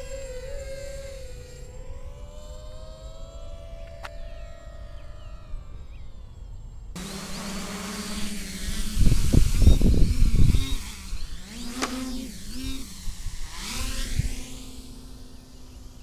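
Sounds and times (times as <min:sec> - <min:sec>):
drone propellers buzzing: 0:00.0 - 0:16.0
wind buffeting microphone: 0:08.0 - 0:15.2.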